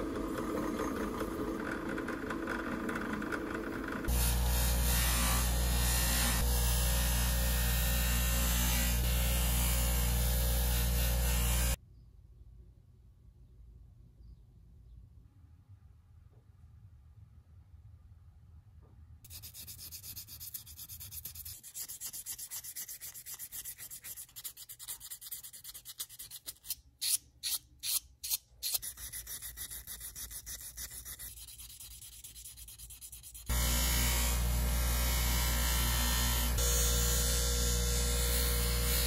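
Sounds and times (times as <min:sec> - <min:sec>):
bench grinder motor humming: 0:00.0 - 0:11.8, 0:33.5 - 0:39.0
metal rubbed on sandpaper: 0:19.3 - 0:33.5.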